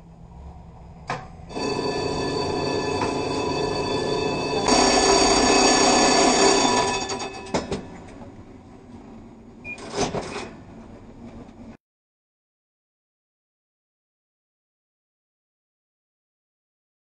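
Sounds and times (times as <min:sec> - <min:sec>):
tram warning bell ringing: 0:01.5 - 0:08.2.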